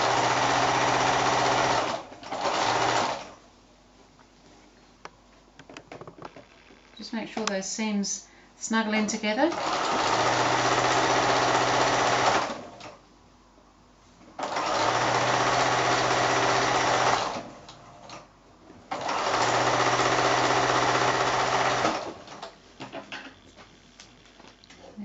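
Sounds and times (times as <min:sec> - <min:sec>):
electric sewing machine stitching: 0:00.0 - 0:03.4, 0:09.5 - 0:13.0, 0:14.4 - 0:17.5, 0:18.9 - 0:22.4.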